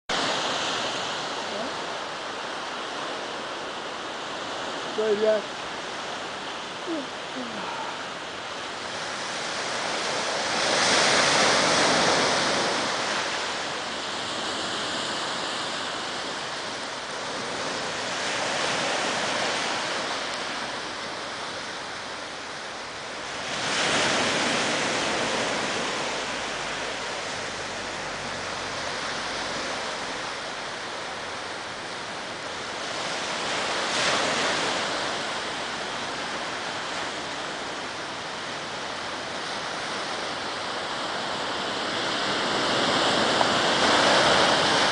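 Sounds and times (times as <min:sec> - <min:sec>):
waves washing on sand: 0:00.1 - 0:44.9.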